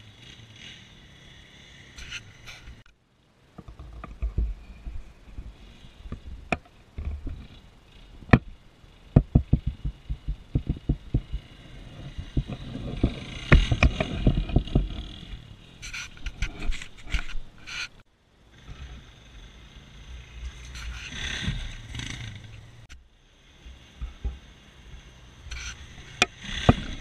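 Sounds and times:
distant atv engine running: 0:00.0 - 0:27.0
clicks and rustles: 0:02.0 - 0:18.0
wind buffeting microphone: 0:04.0 - 0:17.6.

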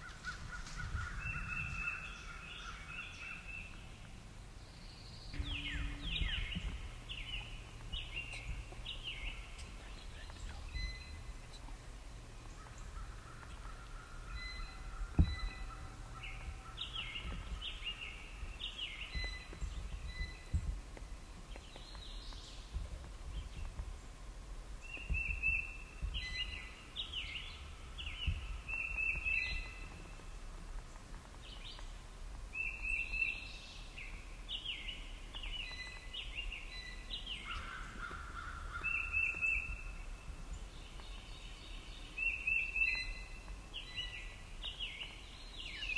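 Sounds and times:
songbirds singing: 0:00.0 - 0:45.9
sharp low thump: 0:05.4 - 0:10.5, 0:15.1 - 0:15.8.

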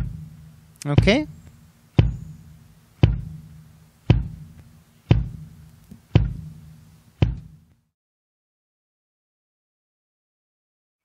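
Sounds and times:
kick drum beats with low ring: 0:00.0 - 0:07.7.

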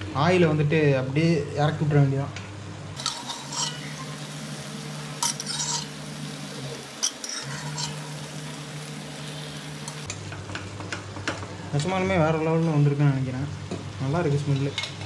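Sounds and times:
utensils clinking against pan: 0:03.0 - 0:04.4, 0:05.2 - 0:06.1, 0:06.9 - 0:08.4
meat sizzling in a frying pan: 0:03.0 - 0:10.1.

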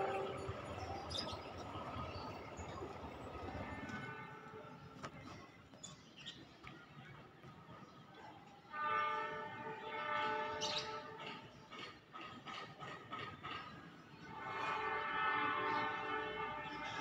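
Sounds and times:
locomotive horn chord: 0:00.0 - 0:04.9, 0:08.7 - 0:11.2, 0:14.3 - 0:17.0.

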